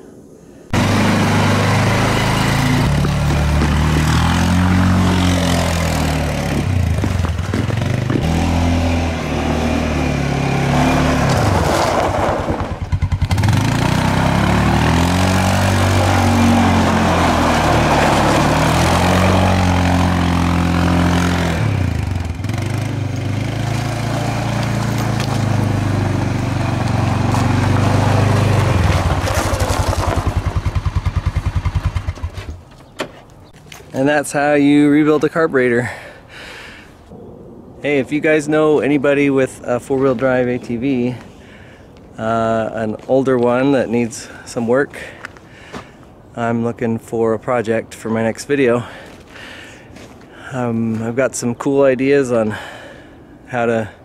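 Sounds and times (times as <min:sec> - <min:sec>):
atv engine revving and idling: 0:00.8 - 0:32.4.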